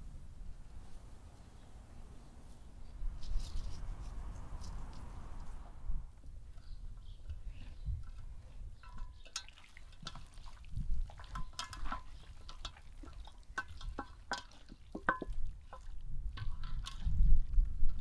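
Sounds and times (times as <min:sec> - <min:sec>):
wet squelches of raw meat: 0:07.7 - 0:17.1
meat knocking against bowl: 0:11.2 - 0:16.7.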